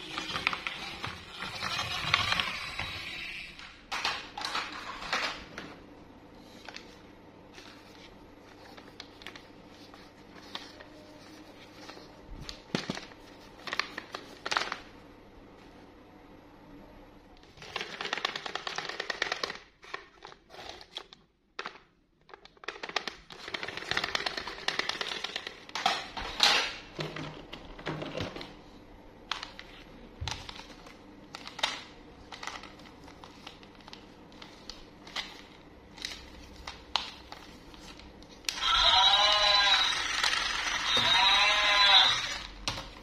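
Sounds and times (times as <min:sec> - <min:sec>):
plastic toys rattling and knocking: 0:17.6 - 0:20.8.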